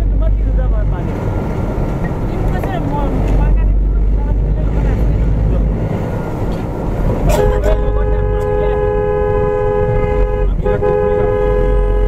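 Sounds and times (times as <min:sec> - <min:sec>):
vehicle driving rumble: 0:00.0 - 0:12.0
two-pitch vehicle horn: 0:07.3 - 0:12.0.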